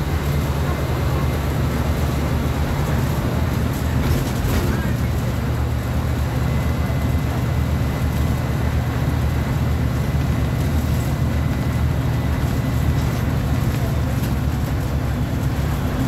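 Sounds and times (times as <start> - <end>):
bus diesel engine running: 0.0 - 16.0.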